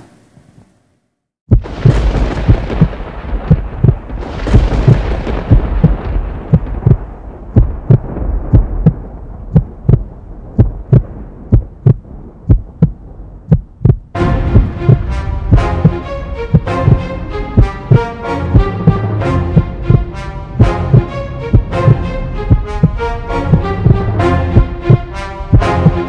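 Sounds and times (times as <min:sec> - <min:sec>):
heartbeat thumps: 0:01.5 - 0:26.0
low rumbling noise: 0:01.5 - 0:26.0
music: 0:14.2 - 0:26.0.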